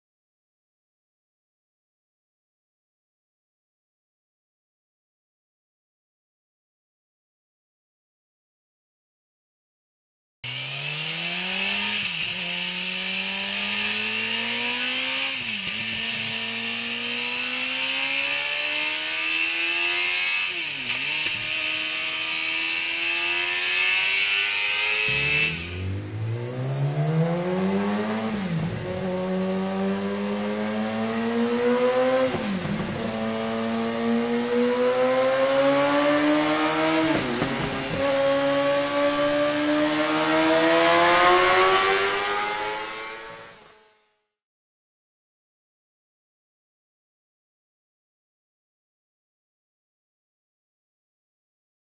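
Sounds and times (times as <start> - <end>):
motorcycle engine accelerating: 10.4 - 44.1
loud hiss: 10.5 - 26.0.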